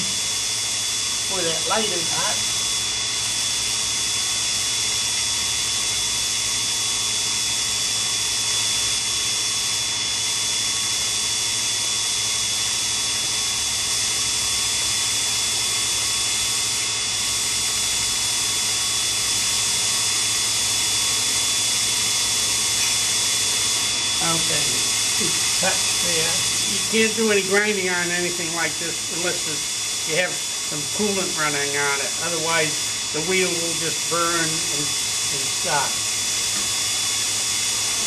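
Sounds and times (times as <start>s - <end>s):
low hum: 0.0s - 4.3s, 20.8s - 38.0s
grinding spindle whining: 0.0s - 38.0s.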